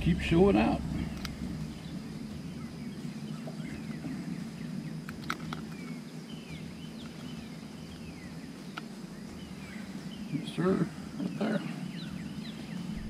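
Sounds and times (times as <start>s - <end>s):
birds chirping: 0.0s - 13.0s
steady low hum: 0.0s - 13.0s
sharp clicks: 1.1s - 1.4s.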